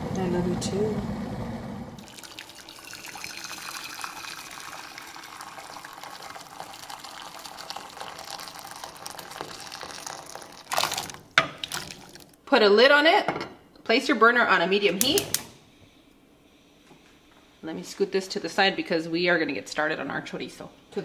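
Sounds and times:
water pouring into a saucepan: 0:02.0 - 0:12.4.

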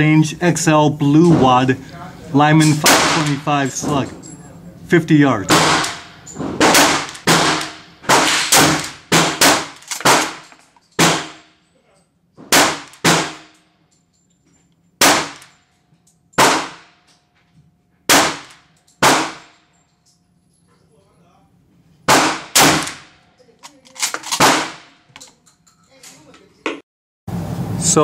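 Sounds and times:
gunshots with echo: 0:02.7 - 0:04.1, 0:05.4 - 0:10.4, 0:11.0 - 0:11.5, 0:12.5 - 0:13.5, 0:15.0 - 0:15.4, 0:16.4 - 0:17.0, 0:18.1 - 0:19.5, 0:22.1 - 0:23.1, 0:24.2 - 0:24.9.

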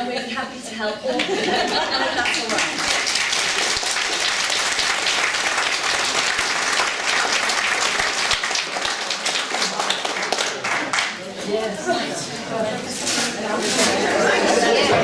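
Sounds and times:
audience applauding: 0:01.2 - 0:11.2.

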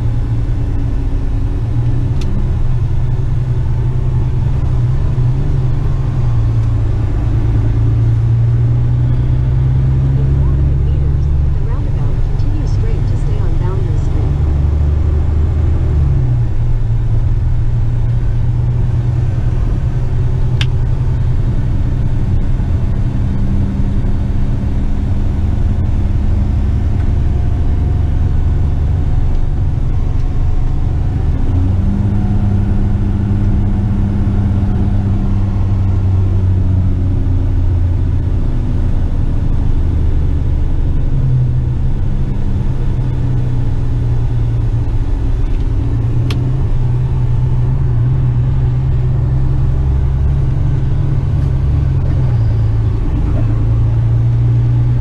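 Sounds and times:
diesel truck engine running: 0:00.0 - 0:55.0.

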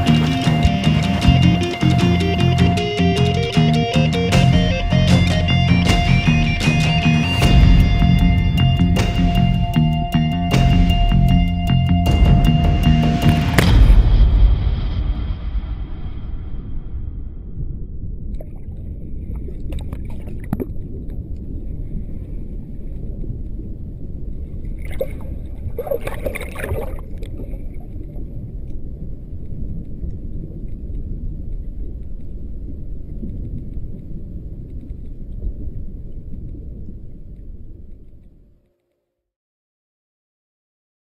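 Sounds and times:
splashing and bubbling: 0:00.0 - 0:02.7, 0:18.3 - 0:38.2
muffled underwater water rumble: 0:13.2 - 0:38.6.

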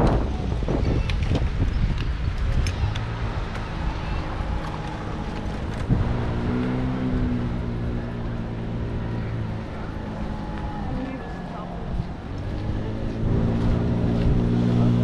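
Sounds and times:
motor vehicle engine hum: 0:00.0 - 0:15.0
wind rumbling on microphone: 0:00.0 - 0:15.0
bicycle clicks and rattles: 0:00.8 - 0:05.9.

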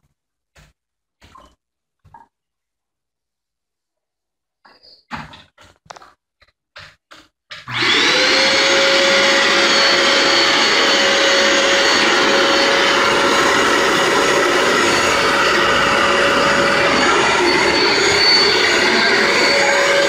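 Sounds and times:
carpet cleaner motor whining: 0:07.7 - 0:20.0.

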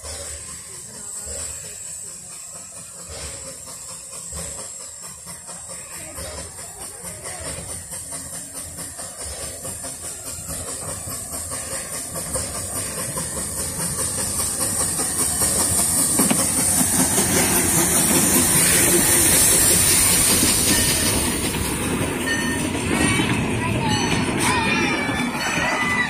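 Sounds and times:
rhythmic exhaust beats: 0:00.0 - 0:26.0
steam hiss: 0:00.0 - 0:26.0
steam locomotive passing: 0:00.0 - 0:26.0
train carriages rolling past: 0:00.0 - 0:26.0.

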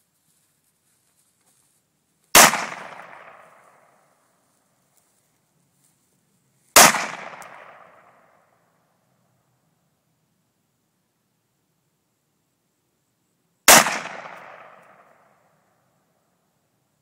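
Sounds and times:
rifle shots: 0:02.3 - 0:04.0, 0:06.8 - 0:08.4, 0:13.7 - 0:15.4.

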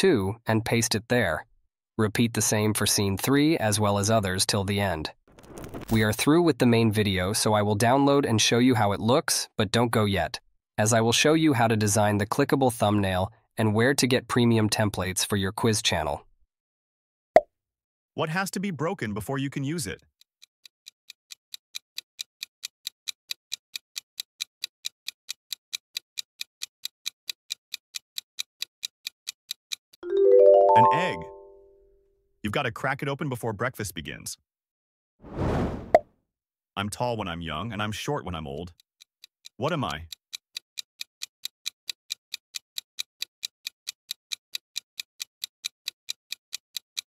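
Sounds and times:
clock ticking: 0:20.6 - 0:29.8, 0:38.7 - 0:47.0.

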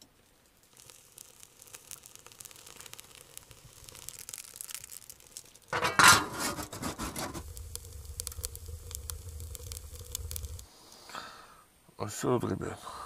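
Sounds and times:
wood crackling in stove: 0:00.0 - 0:11.6
low rumble: 0:07.0 - 0:10.6.

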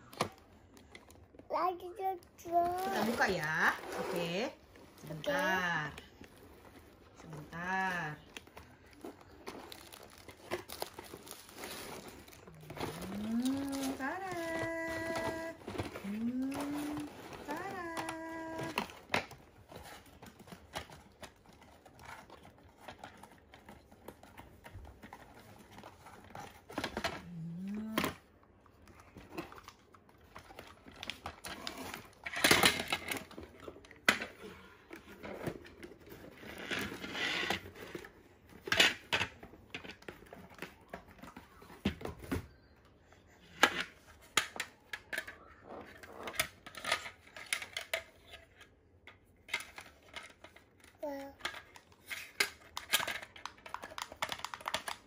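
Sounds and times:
packaging rustling and tearing: 0:07.6 - 0:28.0.

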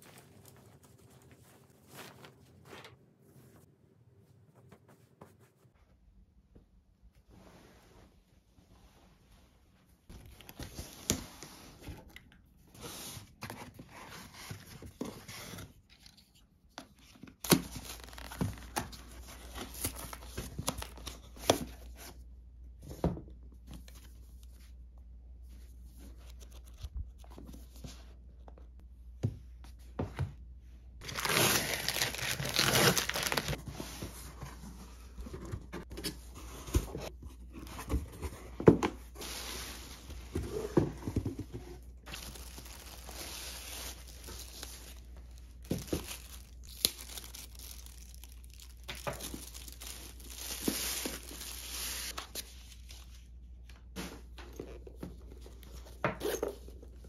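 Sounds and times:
cardboard and paper rustling: 0:00.0 - 0:03.7, 0:12.8 - 0:22.2, 0:31.0 - 0:57.0
cardboard tearing: 0:31.0 - 0:33.6.

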